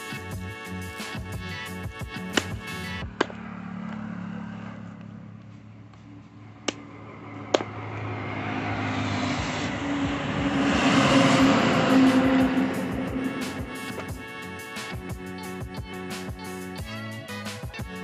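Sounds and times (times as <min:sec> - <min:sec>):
vehicle engine approaching: 0:00.0 - 0:16.8
low hum: 0:02.2 - 0:16.0.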